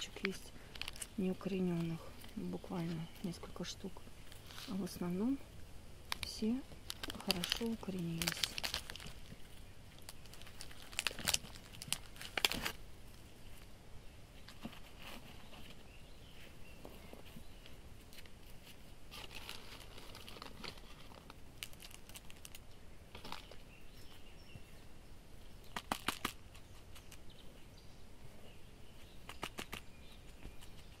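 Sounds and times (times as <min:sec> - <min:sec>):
plastic pots crinkling and clicking: 0:00.0 - 0:05.4, 0:06.1 - 0:13.7, 0:16.8 - 0:23.7, 0:25.6 - 0:27.2
soil rustling: 0:00.0 - 0:24.7.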